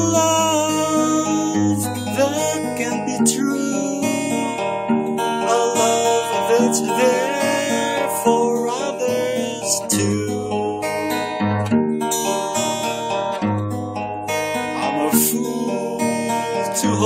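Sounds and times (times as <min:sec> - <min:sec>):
acoustic guitar chords: 0:00.0 - 0:17.0.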